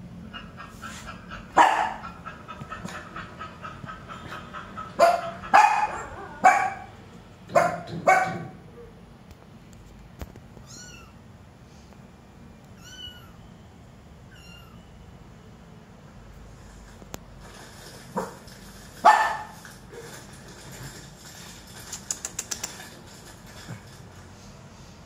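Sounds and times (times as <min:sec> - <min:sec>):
small dog barking: 0:01.5 - 0:02.2, 0:04.9 - 0:09.0, 0:19.0 - 0:19.6.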